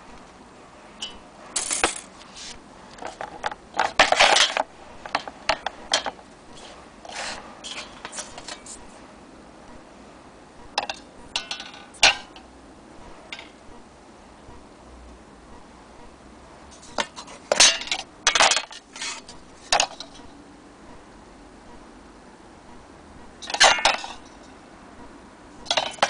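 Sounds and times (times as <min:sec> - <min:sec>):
metal clinks scrapes and knocks: 0:01.0 - 0:09.0.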